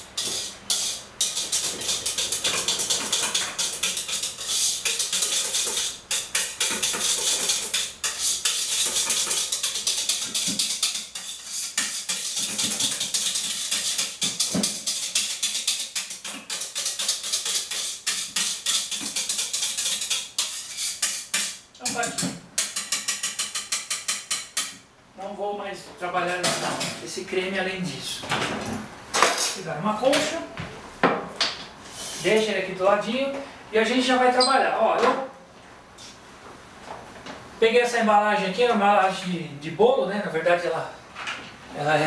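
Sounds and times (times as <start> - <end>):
whisk scraping a metal bowl: 0.0 - 24.8.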